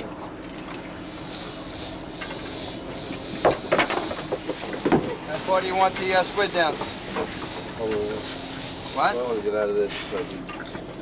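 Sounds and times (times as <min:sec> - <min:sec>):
boat engine drone: 0:00.0 - 0:11.0
knocks and clatters on deck: 0:03.4 - 0:05.2.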